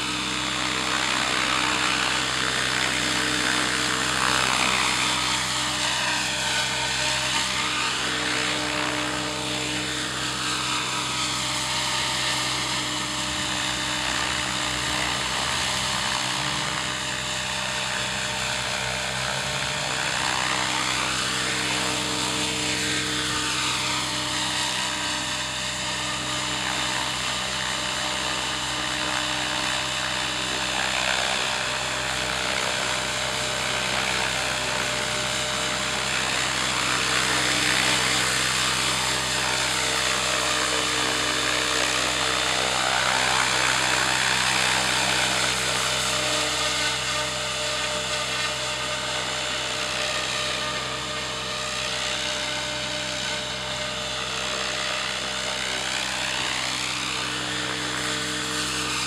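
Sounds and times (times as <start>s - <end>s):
model helicopter motor whine: 0.0s - 59.0s.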